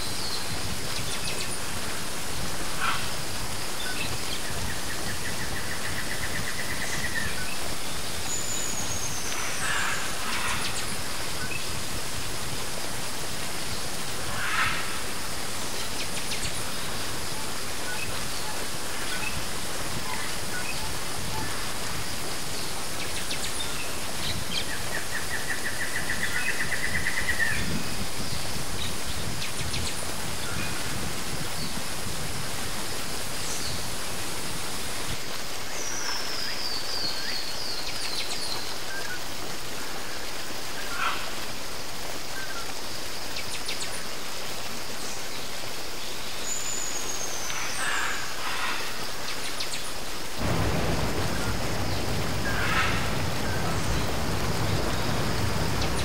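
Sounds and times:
running water rushing: 0:00.0 - 0:56.0
birds calling: 0:50.4 - 0:56.0.

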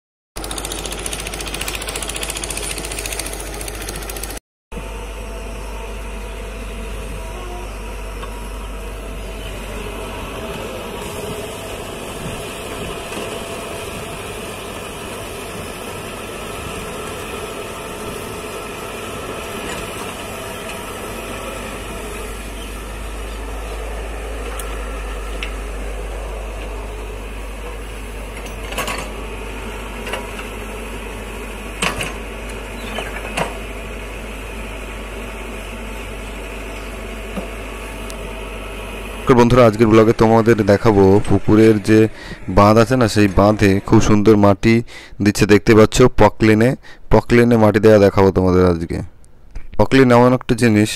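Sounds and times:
excavator diesel engine running: 0:00.4 - 0:45.2.

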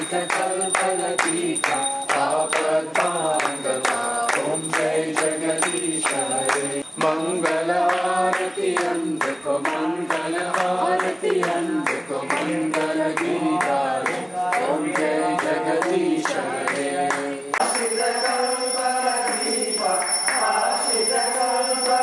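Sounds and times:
sharp percussion beats: 0:00.0 - 0:10.9
group singing devotional song: 0:00.0 - 0:22.0.

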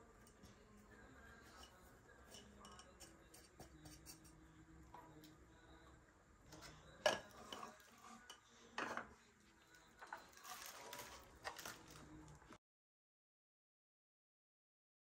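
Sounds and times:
faint handling noise: 0:06.5 - 0:12.6
glass jars clinking: 0:06.6 - 0:09.1.

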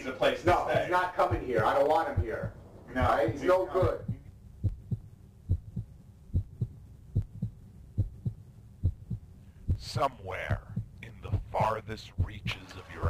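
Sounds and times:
faint hum: 0:00.0 - 0:13.0
heartbeat double thump: 0:00.8 - 0:12.7.

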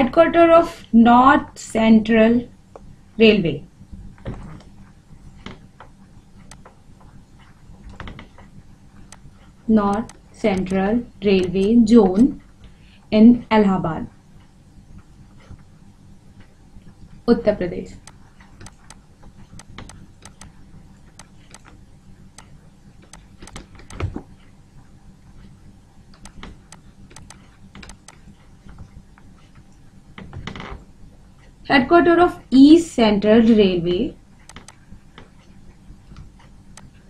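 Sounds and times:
low steady hum: 0:00.0 - 0:37.0
faint scattered clicks: 0:05.4 - 0:12.8, 0:17.9 - 0:30.7, 0:34.4 - 0:37.0
stylus tapping on tablet: 0:09.9 - 0:10.8, 0:18.0 - 0:19.0, 0:19.6 - 0:20.5.

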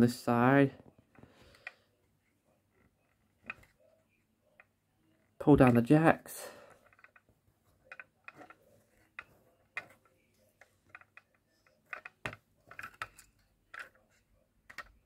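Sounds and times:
small plastic clicks and taps: 0:07.9 - 0:14.0, 0:14.6 - 0:15.0.

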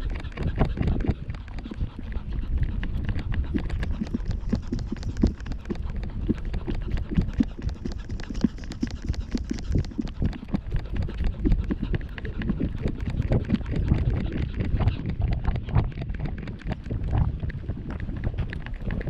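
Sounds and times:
wind rumble: 0:09.4 - 0:19.0.

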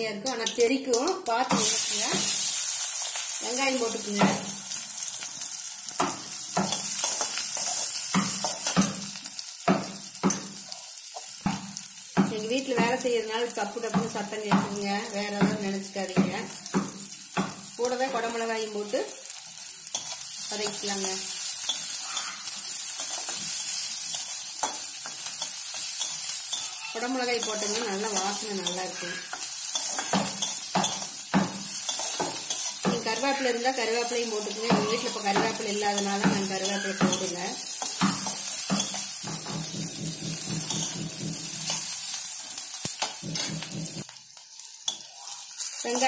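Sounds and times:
vegetables sizzling in oil: 0:00.0 - 0:46.0
spatula scraping and tapping pan: 0:06.0 - 0:09.1, 0:19.9 - 0:42.2, 0:42.8 - 0:44.1.

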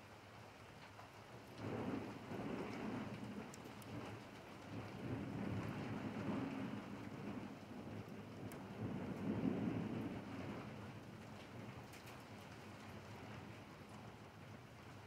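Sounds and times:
rain on pavement: 0:00.0 - 0:15.0
rolling thunder: 0:01.6 - 0:11.8.

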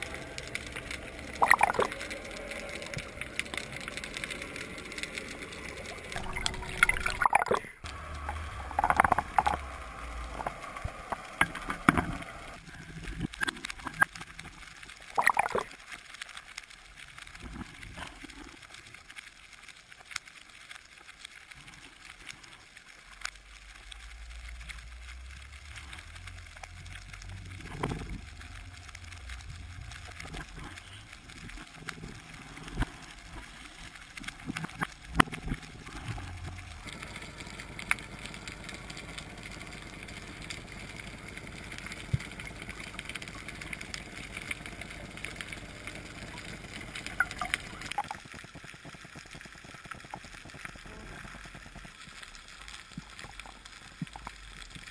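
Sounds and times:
faint underwater clicks and crackles: 0:00.0 - 0:54.9
low water rumble: 0:00.0 - 0:54.9.

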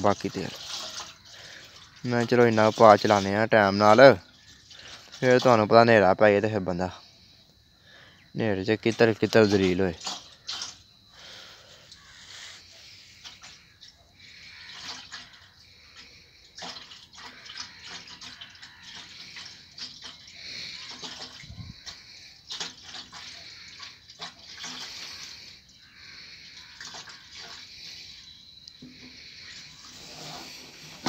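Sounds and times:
fuel pouring with gurgles: 0:00.0 - 0:07.0, 0:08.7 - 0:31.0.

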